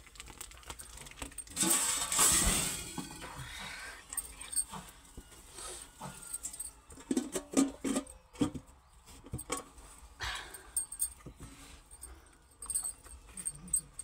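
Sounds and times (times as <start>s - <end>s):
metal utensils clinking on brass pot: 1.3s - 3.4s, 6.0s - 8.5s.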